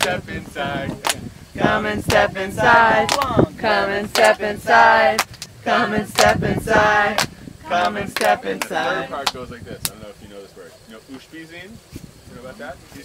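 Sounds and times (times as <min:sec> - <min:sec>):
adults and children singing: 0:00.0 - 0:09.4
sharp hand claps: 0:03.0 - 0:03.4, 0:04.1 - 0:04.4, 0:05.2 - 0:05.5, 0:06.2 - 0:06.4, 0:07.2 - 0:10.0.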